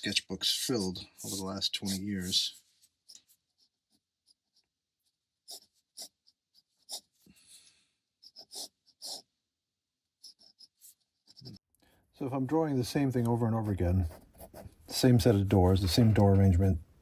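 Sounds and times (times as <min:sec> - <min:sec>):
pen scratching on paper: 0:00.4 - 0:07.3, 0:08.2 - 0:09.4, 0:10.1 - 0:11.6, 0:13.3 - 0:15.1.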